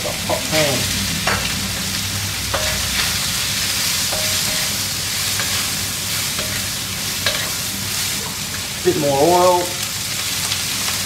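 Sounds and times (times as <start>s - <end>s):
food sizzling in a wok: 0.0s - 11.0s
utensil scraping against a pan: 4.1s - 8.6s.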